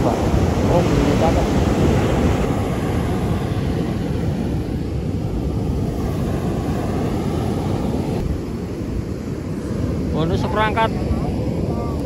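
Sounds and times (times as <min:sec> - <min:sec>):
heavy surf breaking: 0:00.0 - 0:12.0.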